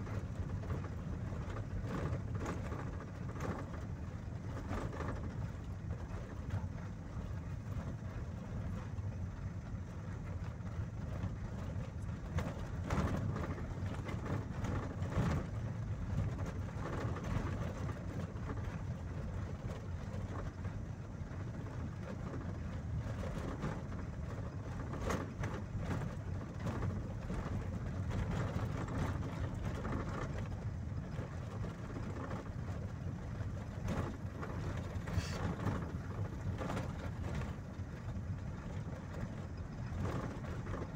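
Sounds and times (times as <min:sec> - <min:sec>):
vehicle engine and tyre rumble: 0:00.0 - 0:40.9.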